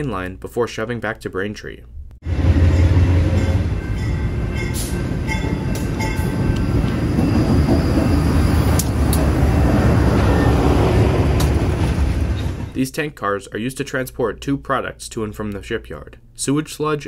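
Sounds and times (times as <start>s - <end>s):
diesel locomotive engine rumbling: 2.2s - 12.8s
tank cars rolling by: 6.3s - 12.8s.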